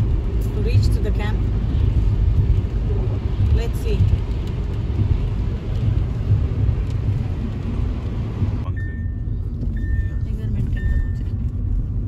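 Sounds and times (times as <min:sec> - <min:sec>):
heavy rain hiss on car: 0:00.0 - 0:08.6
deep road noise rumble: 0:00.0 - 0:12.0.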